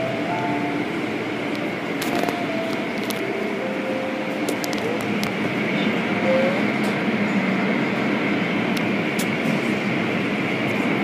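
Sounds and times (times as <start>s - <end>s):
faint machine whine: 0.0s - 7.4s
car wash rushing and churning: 0.0s - 11.0s.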